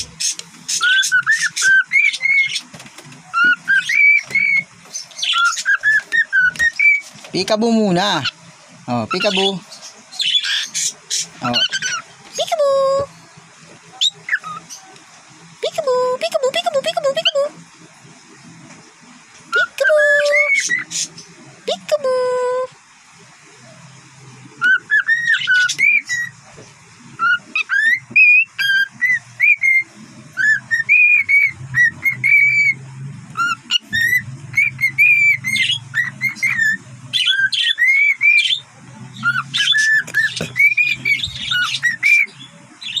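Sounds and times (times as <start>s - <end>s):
cockatiel whistling and chirping: 0.2s - 2.7s, 3.3s - 7.1s, 10.2s - 12.0s, 14.0s - 14.9s, 19.5s - 21.0s, 24.6s - 26.4s, 27.2s - 32.8s, 33.4s - 38.6s, 39.2s - 43.0s.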